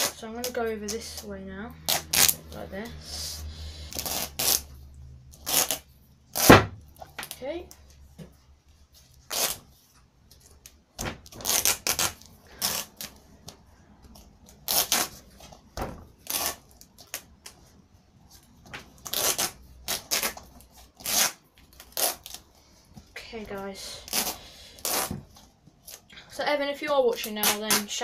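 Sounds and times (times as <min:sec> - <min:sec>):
duct tape ripping off roll: 0:00.0 - 0:02.5, 0:03.9 - 0:07.4, 0:09.2 - 0:09.8, 0:11.0 - 0:13.3, 0:14.1 - 0:17.5, 0:18.8 - 0:22.5, 0:24.0 - 0:26.1, 0:27.2 - 0:28.0.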